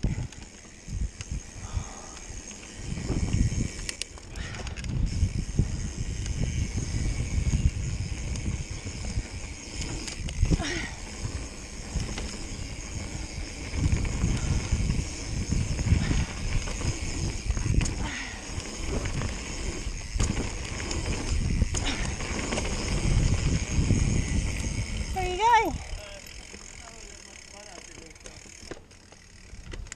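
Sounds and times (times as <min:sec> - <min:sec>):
wind buffeting microphone: 0:00.0 - 0:26.0
bike knocking and rattling: 0:00.0 - 0:29.9
bike squeaks: 0:02.2 - 0:29.7
tyres rumbling over dirt: 0:07.9 - 0:25.1.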